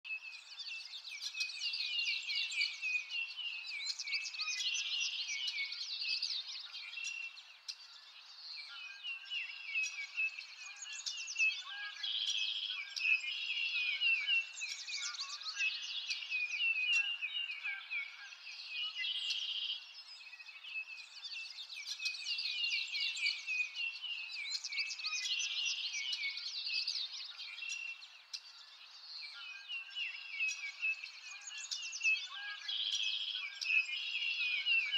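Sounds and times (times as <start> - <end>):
small birds chirping and trilling: 0.0 - 34.9.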